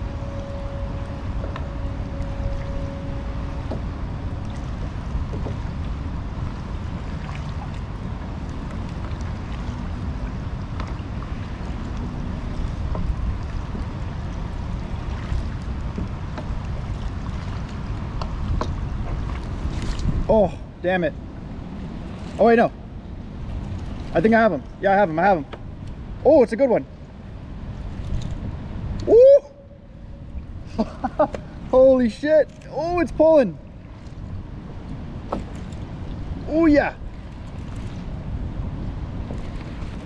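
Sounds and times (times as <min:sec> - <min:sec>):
wind rumble on microphone: 0:00.0 - 0:40.0
waves slapping against kayak hull: 0:03.5 - 0:20.3, 0:30.4 - 0:40.0.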